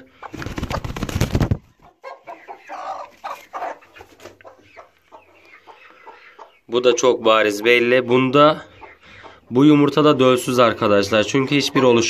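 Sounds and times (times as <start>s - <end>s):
hen clucking softly: 1.7s - 9.7s.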